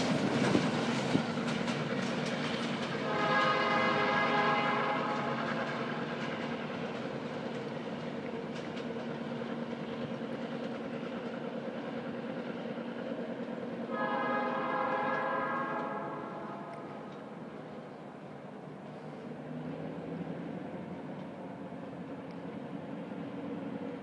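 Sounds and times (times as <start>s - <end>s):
moving train rumble: 0.0s - 24.0s
locomotive horn blasts: 3.0s - 5.4s, 13.9s - 17.2s.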